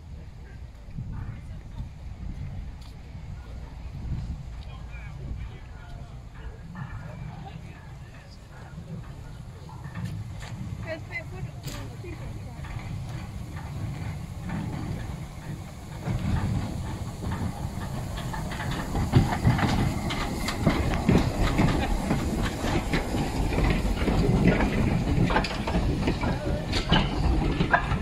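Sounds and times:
steam train passing: 0:00.0 - 0:28.0
wheels clattering over rail joints: 0:02.2 - 0:28.0
steam hissing: 0:06.0 - 0:28.0.

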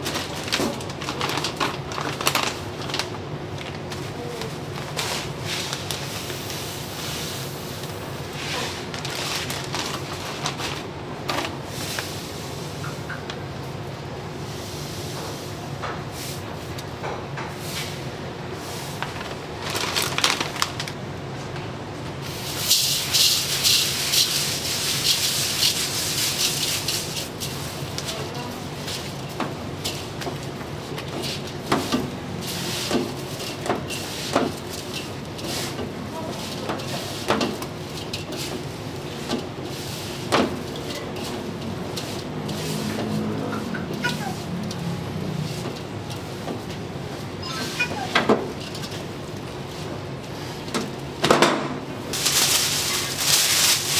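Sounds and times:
seeds poured and rubbed rustling: 0:22.3 - 0:29.2, 0:52.1 - 0:53.9
rice scraping in metal bowl: 0:22.7 - 0:30.1, 0:30.9 - 0:47.9.

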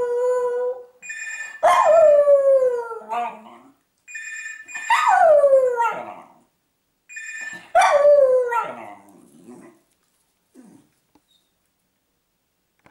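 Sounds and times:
telephone ringing: 0:01.0 - 0:01.6, 0:04.1 - 0:05.0, 0:07.1 - 0:07.7.

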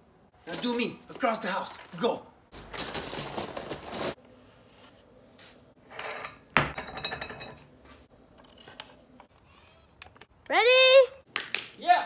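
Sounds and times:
rustling and handling noises: 0:00.4 - 0:05.7.

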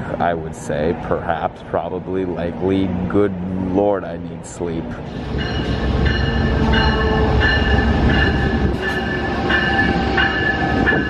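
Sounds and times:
train rumbling: 0:00.0 - 0:11.0
high-pitched train squeals: 0:05.1 - 0:11.0.

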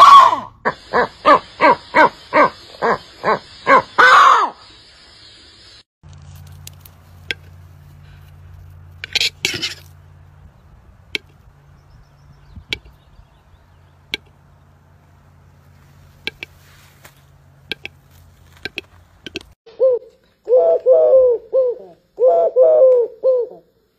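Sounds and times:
low steady hum: 0:06.0 - 0:23.9.

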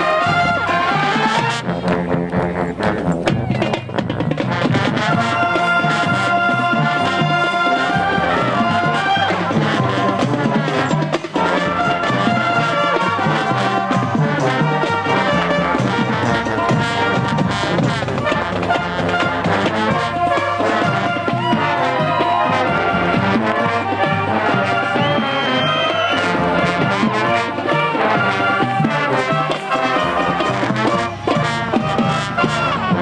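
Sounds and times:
cymbals and drums: 0:00.0 - 0:33.0
marching band playing: 0:00.0 - 0:33.0.

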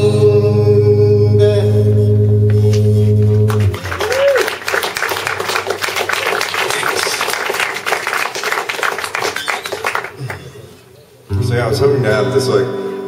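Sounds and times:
audience clapping: 0:02.7 - 0:10.7.

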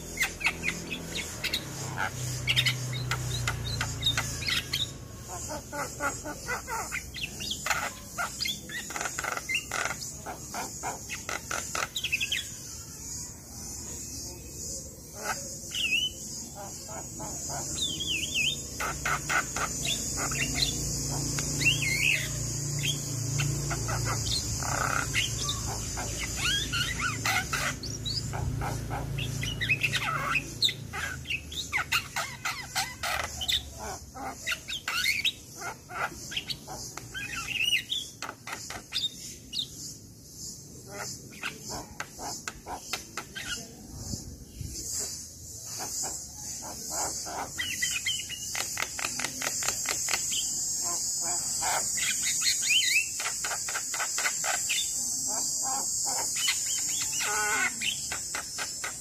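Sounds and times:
bird chattering: 0:00.0 - 0:59.0.

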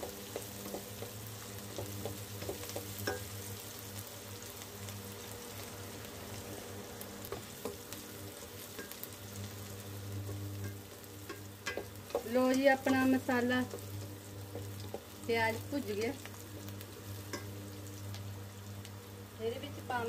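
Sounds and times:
onions sizzling in a pan: 0:00.0 - 0:20.0.

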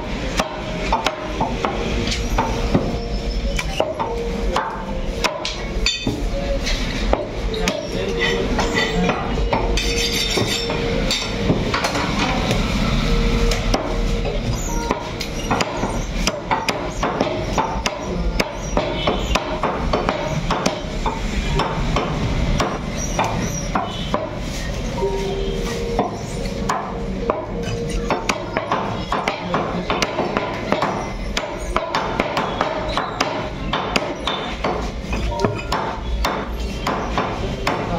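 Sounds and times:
knife chopping meat on wood: 0:15.0 - 0:24.4, 0:26.6 - 0:37.9.

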